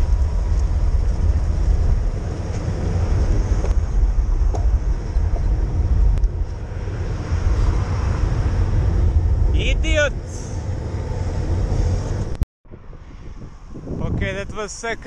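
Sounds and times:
truck engine rumbling: 0.0 - 12.4
wind buffeting microphone: 0.0 - 15.0.

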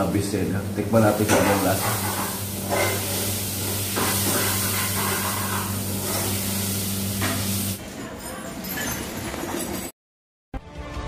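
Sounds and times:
kitchen background hiss: 0.0 - 7.9.

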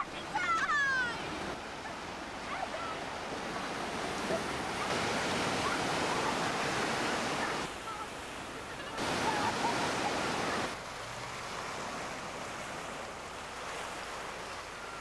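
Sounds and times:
surf breaking over rocks: 2.4 - 15.0.

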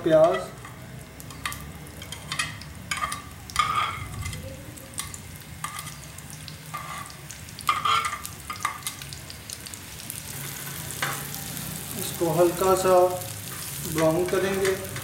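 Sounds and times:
onions sizzling in hot oil: 0.0 - 15.0
metal spatula scraping a plate: 2.1 - 4.4, 6.7 - 8.7.

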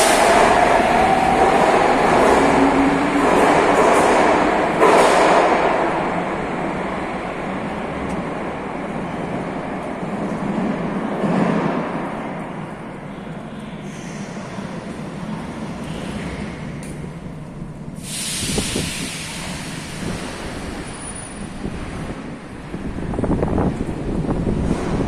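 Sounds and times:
metro train rumble: 0.0 - 25.0
loud hiss: 18.0 - 20.6.

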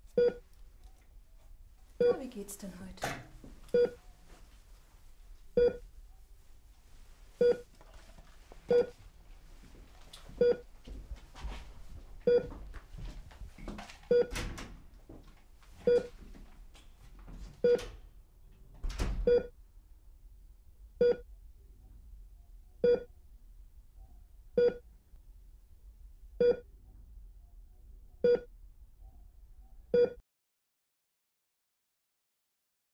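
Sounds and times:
rustling and shuffling: 0.0 - 18.8
patient monitor beeping: 0.2 - 0.4, 2.0 - 2.2, 3.7 - 4.0, 5.6 - 5.8, 7.4 - 7.6, 8.7 - 9.0, 10.4 - 10.7, 12.2 - 12.5, 14.1 - 14.4, 15.8 - 16.1, 17.6 - 17.8, 19.3 - 19.5, 21.0 - 21.2, 22.8 - 23.1, 24.6 - 24.8, 26.4 - 26.7, 28.2 - 28.5.

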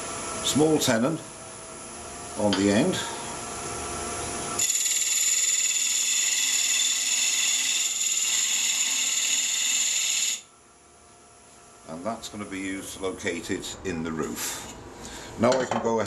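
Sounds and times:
wood lathe humming: 4.5 - 10.5
high-pitched cutting noise: 4.6 - 10.4.

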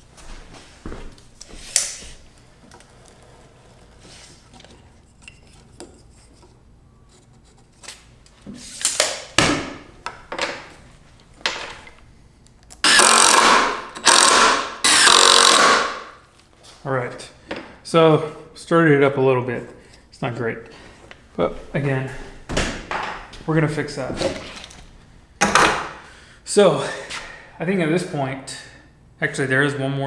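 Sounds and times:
tools and lumber clicking: 12.6 - 16.0
impact driver driving screw into wood: 12.8 - 16.1.

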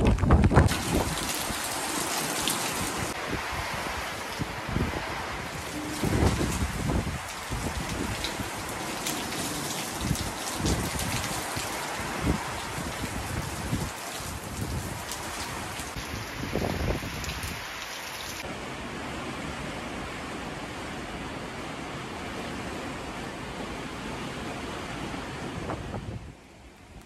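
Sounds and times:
heavy rain falling: 0.0 - 25.8.

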